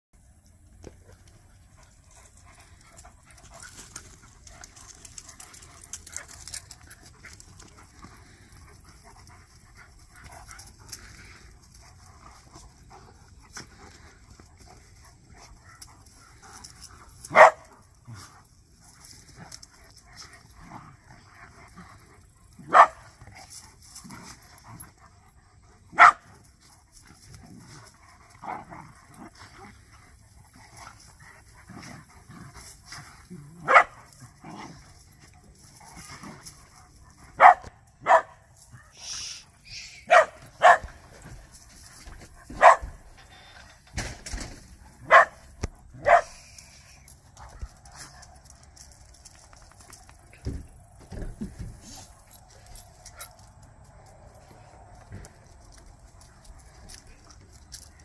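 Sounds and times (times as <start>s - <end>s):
dogs panting: 0.8s - 58.0s
dog barking loudly: 17.3s - 17.6s, 22.6s - 23.0s, 25.9s - 26.3s, 33.6s - 34.0s, 37.4s - 38.4s, 40.0s - 40.9s, 42.5s - 43.0s, 45.0s - 46.3s.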